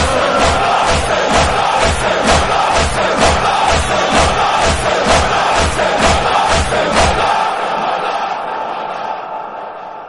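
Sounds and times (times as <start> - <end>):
crowd chanting in unison: 0.0 - 10.0
hands beating on chests: 0.4 - 7.3.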